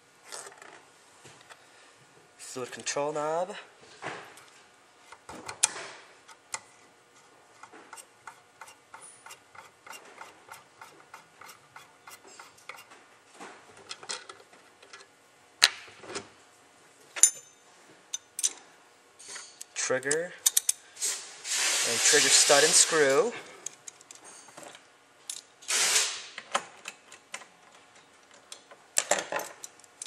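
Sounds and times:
metal parts clicking: 19.3 - 20.8.

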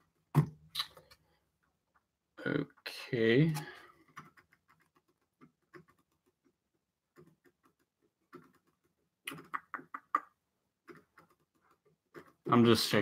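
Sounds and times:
faint keyboard typing: 3.5 - 10.2, 10.8 - 12.8.

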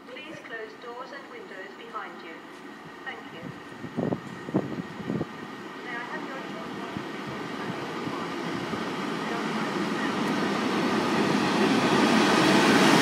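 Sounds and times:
train wheels rumbling on rails: 2.6 - 13.0.

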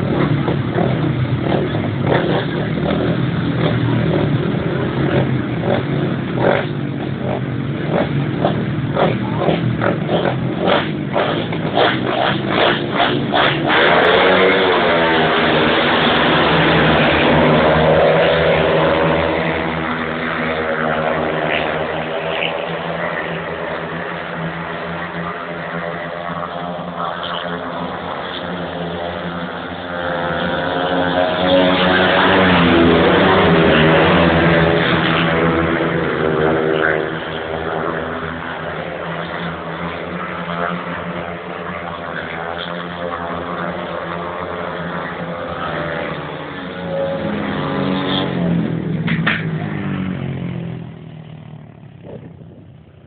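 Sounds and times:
motorcycles racing: 0.0 - 53.0.

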